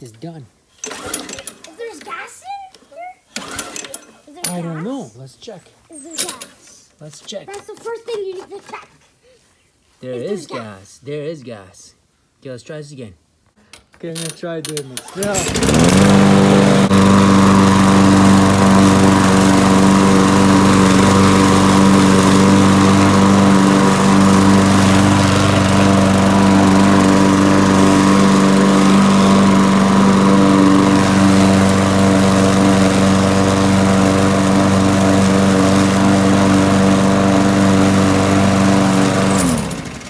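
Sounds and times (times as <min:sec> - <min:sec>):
lawn mower engine running: 0:00.8 - 0:01.4, 0:15.0 - 0:40.0.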